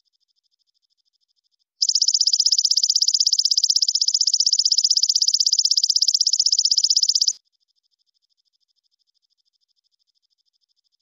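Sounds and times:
insect calling in shrill pulses: 1.8s - 7.4s.

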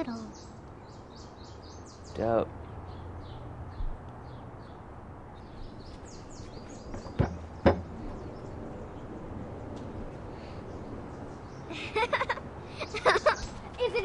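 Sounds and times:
small birds chirping: 0.0s - 14.0s
sharp knocks: 6.9s - 8.1s.

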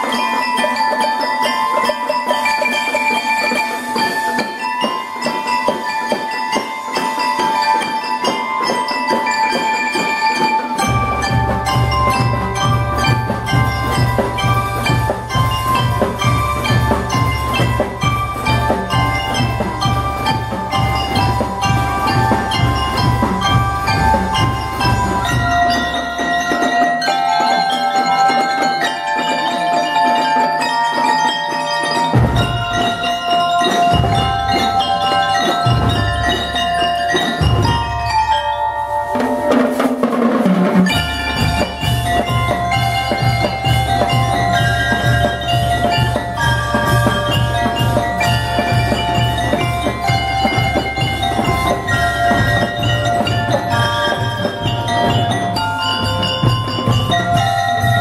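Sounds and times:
mallet keyboard melody: 0.0s - 58.0s
bass and snare drum beat: 10.8s - 26.6s, 39.2s - 58.0s.

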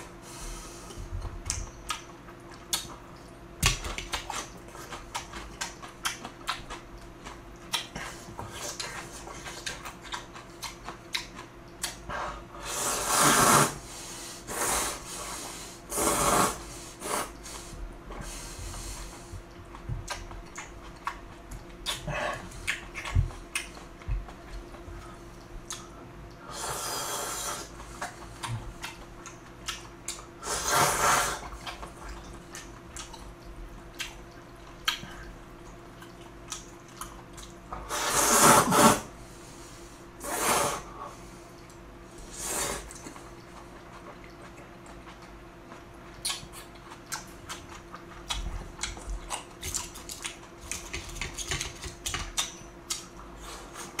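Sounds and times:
wet chewing clicks: 1.4s - 12.0s, 19.2s - 26.4s, 27.8s - 30.3s, 31.4s - 37.6s, 42.9s - 53.2s
noodles being slurped: 12.6s - 13.8s, 14.5s - 17.4s, 37.9s - 39.0s.

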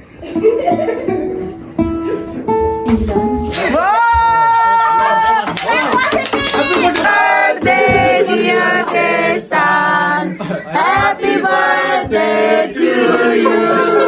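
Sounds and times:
group of people singing: 6.7s - 14.0s.

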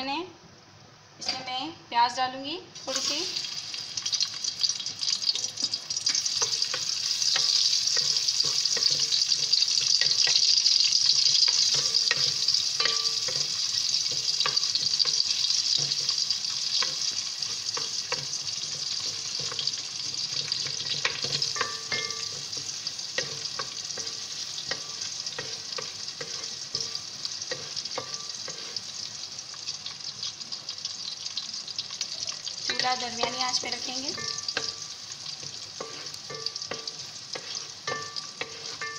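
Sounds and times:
onions sizzling in hot oil: 2.8s - 38.9s
wooden spatula scraping metal pot: 6.1s - 28.9s, 35.4s - 38.9s.

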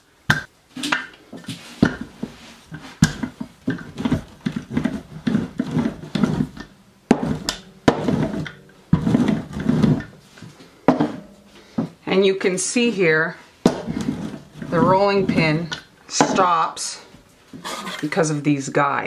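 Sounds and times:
rolling pin rolling over dough: 0.3s - 11.9s, 13.6s - 18.2s
rolling pin knocking on plastic: 1.8s - 10.2s, 13.6s - 16.6s.

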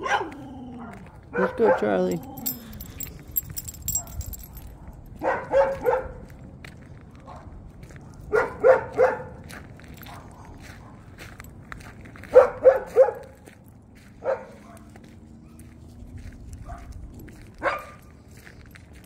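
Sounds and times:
dog barking: 0.0s - 2.8s, 3.9s - 6.3s, 7.2s - 9.4s, 10.0s - 11.1s, 12.2s - 13.4s, 14.2s - 15.7s, 16.6s - 17.0s, 17.6s - 18.1s.

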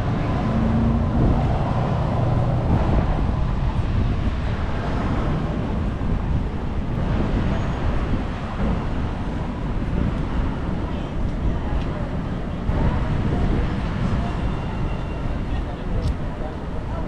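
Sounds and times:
street traffic: 0.0s - 17.0s
wind rumble on microphone: 0.0s - 17.0s.

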